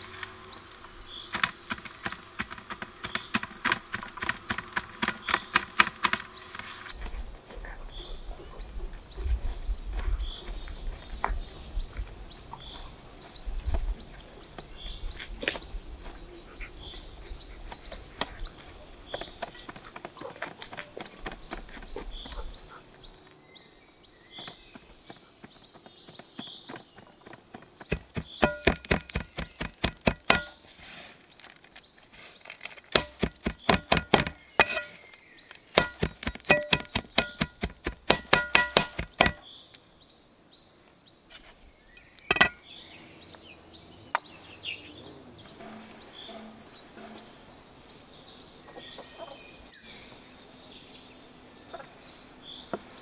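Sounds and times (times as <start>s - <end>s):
small birds chirping: 0.0s - 53.0s
knife chopping on metal tray: 27.9s - 30.6s, 33.0s - 35.0s, 35.8s - 39.4s.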